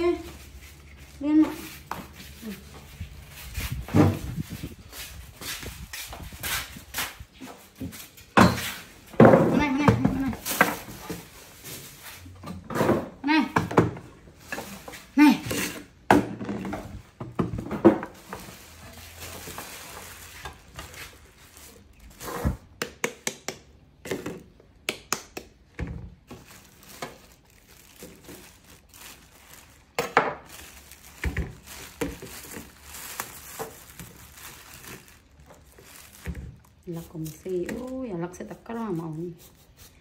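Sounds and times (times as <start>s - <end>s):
plastic bag rustling and crinkling: 0.0s - 12.4s, 16.8s - 22.8s, 26.0s - 40.0s.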